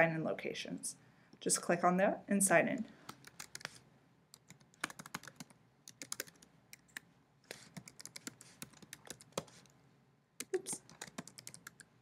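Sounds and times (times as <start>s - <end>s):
keyboard typing: 3.1s - 9.7s, 10.4s - 11.9s.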